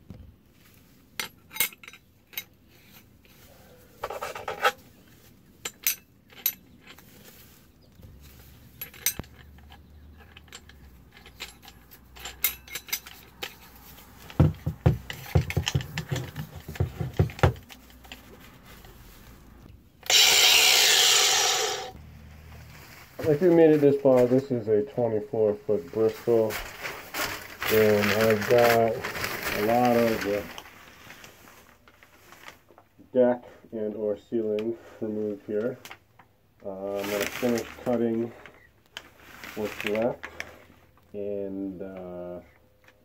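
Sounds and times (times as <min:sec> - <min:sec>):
metal parts clinking and rattling: 0:01.1 - 0:07.6, 0:08.2 - 0:18.5, 0:26.0 - 0:30.6.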